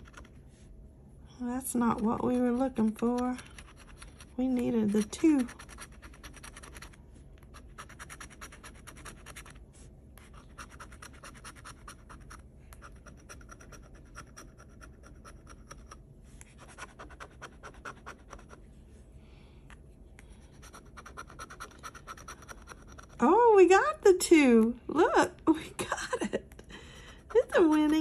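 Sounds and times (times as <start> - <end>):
scraping lottery ticket: 1.9 - 7.0.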